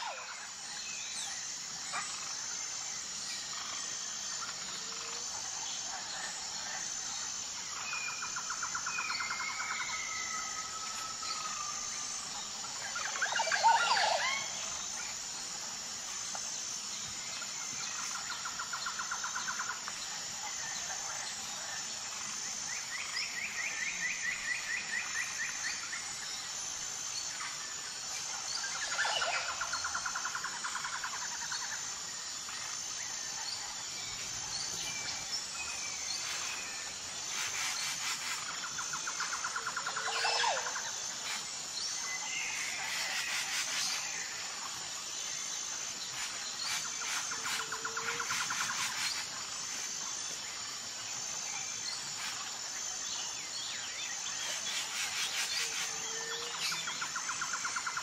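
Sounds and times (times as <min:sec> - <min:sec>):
insect chirring: 0:00.0 - 0:58.0.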